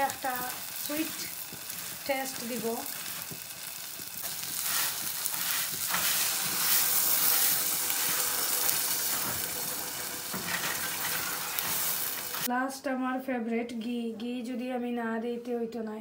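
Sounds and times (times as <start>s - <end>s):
water sizzling in hot pan: 0.0s - 12.5s.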